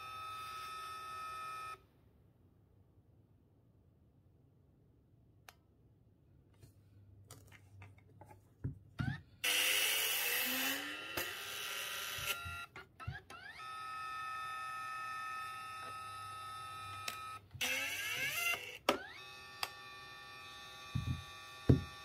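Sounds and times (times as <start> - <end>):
printer motor whirring: 9.4 - 22.0.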